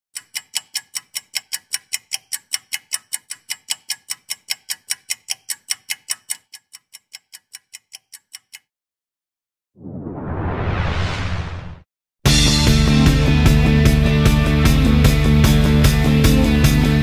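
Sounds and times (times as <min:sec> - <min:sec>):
rapid ticking sound effect: 0:00.2 - 0:08.7.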